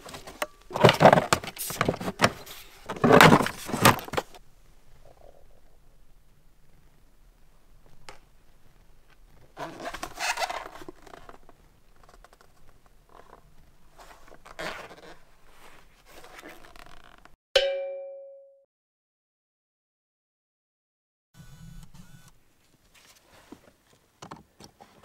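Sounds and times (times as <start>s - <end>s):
plastic trim scraping and rustling: 0.0s - 4.4s
short bell-like ding: 17.6s - 18.6s.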